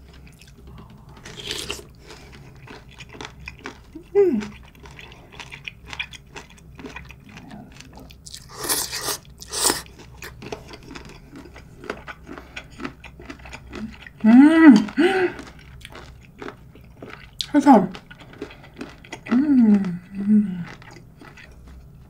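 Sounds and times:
crunchy chewing: 0.0 - 22.0
person humming mmm: 4.0 - 4.6, 13.8 - 15.4, 19.3 - 20.8
slurping noodle soup: 8.3 - 10.4.

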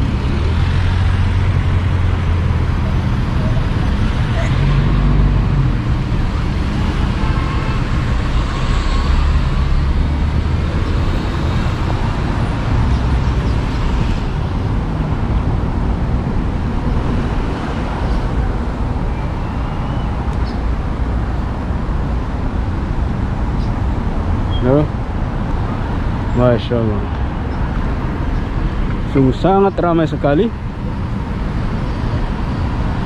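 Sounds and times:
wind noise on microphone: 0.0 - 26.4
road traffic rushing: 0.0 - 33.0.

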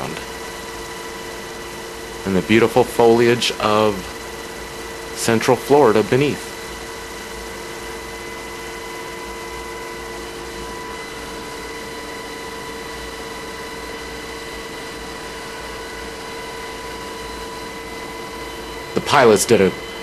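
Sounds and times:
high whining tones: 0.0 - 20.0
helicopter cabin rushing noise: 15.7 - 20.0.

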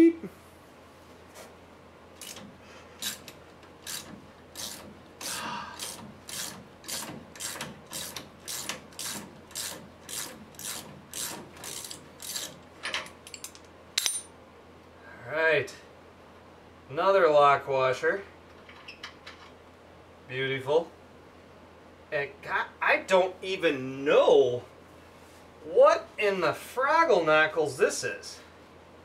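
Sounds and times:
ratchet wrench clicking: 3.0 - 12.6.

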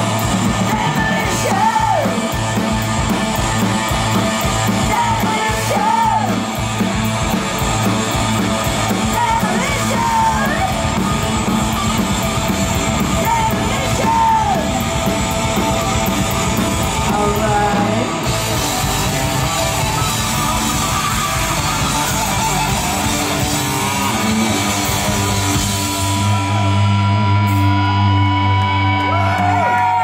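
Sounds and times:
bass guitar: 0.0 - 30.0
distorted electric guitars: 0.0 - 30.0
drums: 0.0 - 30.0.

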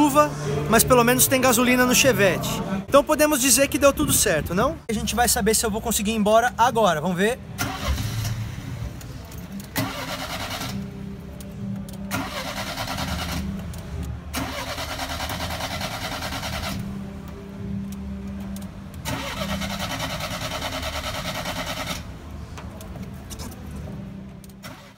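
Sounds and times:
starter motor cranking engine: 7.6 - 8.6, 9.8 - 10.8, 12.1 - 13.5, 14.3 - 16.8, 19.0 - 22.1.

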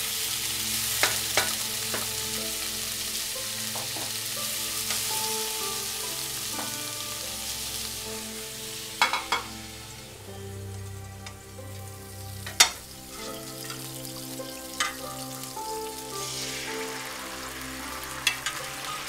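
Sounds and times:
vegetables sizzling in oil: 0.0 - 19.0
utensil knocking on pan: 9.0 - 9.5.

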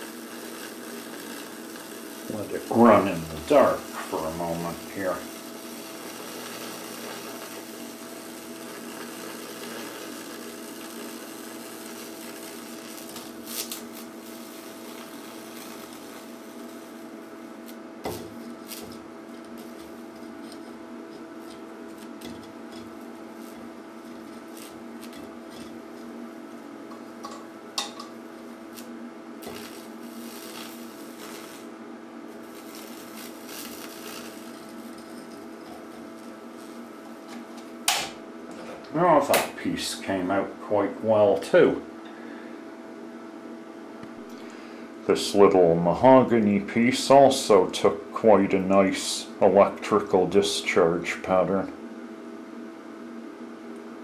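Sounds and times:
electrical discharge crackling: 0.0 - 38.2
loud electrical snaps: 0.0 - 39.7
electrical hum: 0.0 - 54.0.

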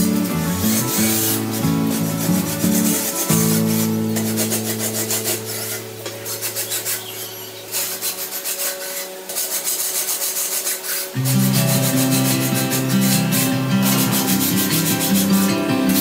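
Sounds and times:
low guitar-like chords: 0.0 - 7.7, 11.2 - 16.0
quick scraping rhythm: 0.0 - 16.0.

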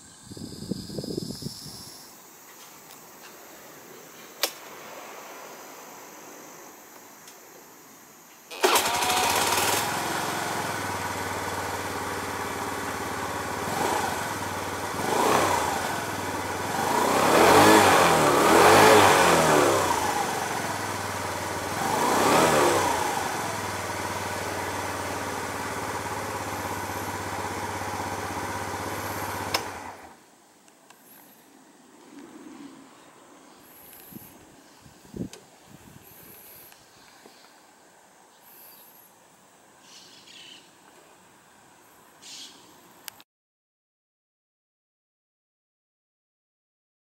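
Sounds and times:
scooter engine revving: 8.5 - 30.2
scooter engine starting and idling: 8.5 - 30.2.

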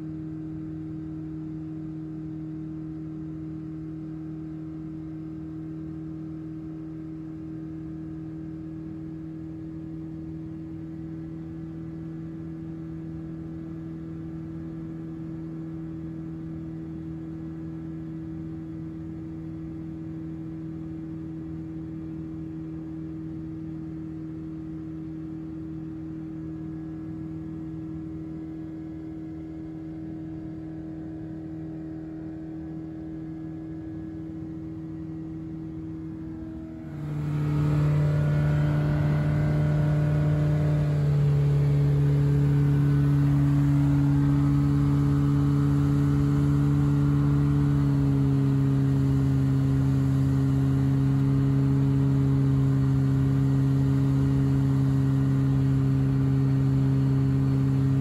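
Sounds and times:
light aircraft engine droning: 28.7 - 58.0.

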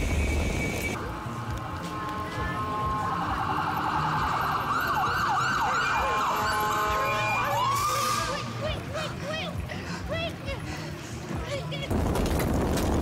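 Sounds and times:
fire engine siren: 2.5 - 8.5.

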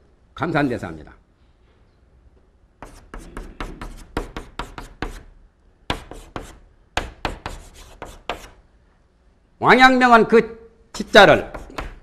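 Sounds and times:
chalk scratching on blackboard: 2.8 - 5.3, 5.9 - 8.6, 11.0 - 12.0.

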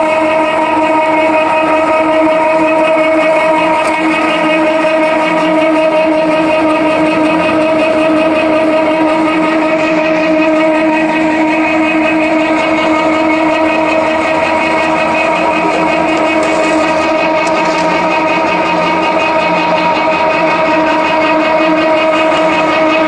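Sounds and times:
machine whine and hum: 0.0 - 23.0.

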